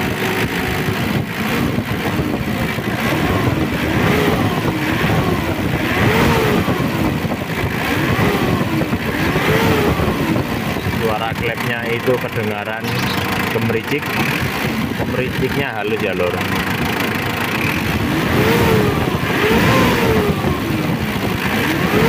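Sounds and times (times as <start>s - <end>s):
diesel engine revving: 0.0s - 22.0s
engine crackling rattle: 0.0s - 22.0s.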